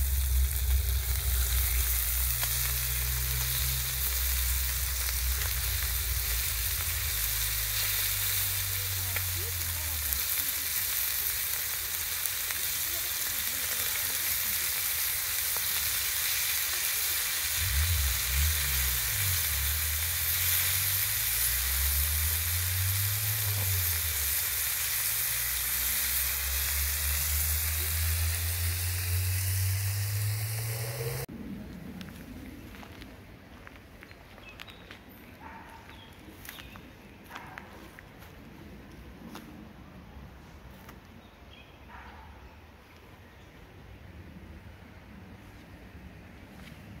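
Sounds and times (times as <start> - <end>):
low wavering hum: 0.0 - 7.8, 25.6 - 32.6
meat sizzling on stone: 0.0 - 31.3.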